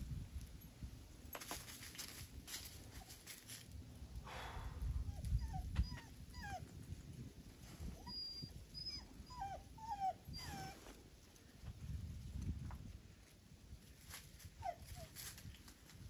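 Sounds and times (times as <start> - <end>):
dog whimpering: 5.1 - 6.6, 7.9 - 10.8.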